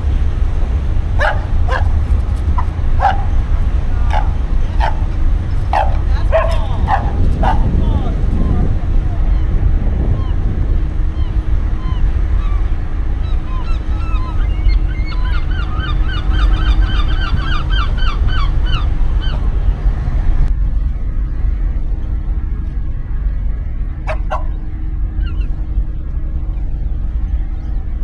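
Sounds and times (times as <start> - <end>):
steady low rumble: 0.0 - 28.0.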